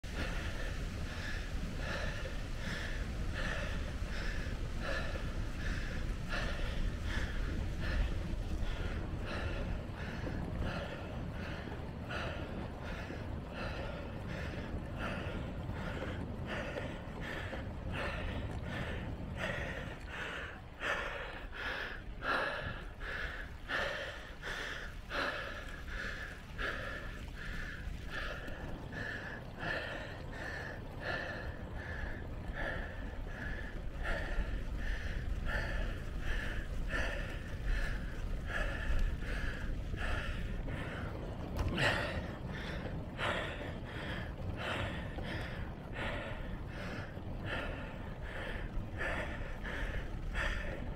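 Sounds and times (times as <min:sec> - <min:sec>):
cyclist breathing hard: 0:00.0 - 0:50.9
low rumble: 0:00.0 - 0:50.9.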